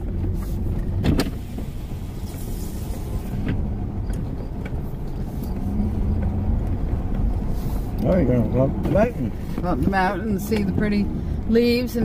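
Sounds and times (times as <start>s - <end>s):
car engine and tyres rumbling: 0.0s - 12.0s.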